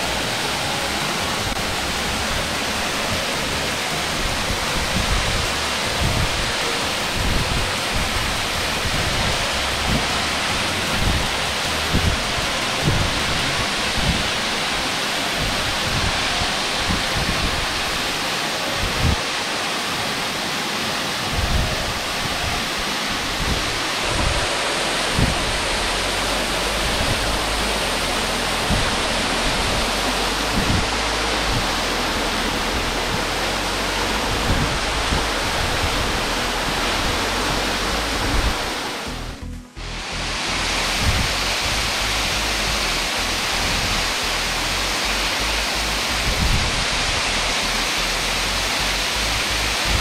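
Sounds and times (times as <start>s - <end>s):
waterfall rushing and splashing: 0.0s - 50.0s
low thumps: 23.2s - 42.8s.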